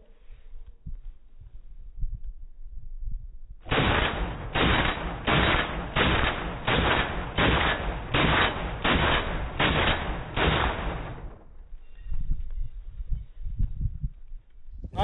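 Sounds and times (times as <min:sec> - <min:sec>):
rifle shots: 0:03.7 - 0:11.5.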